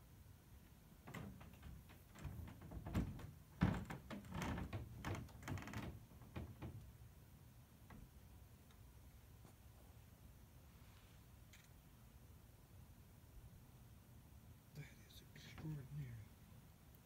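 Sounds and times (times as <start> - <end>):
soft knocks clicks and thumps: 1.0 - 7.0, 7.8 - 8.8.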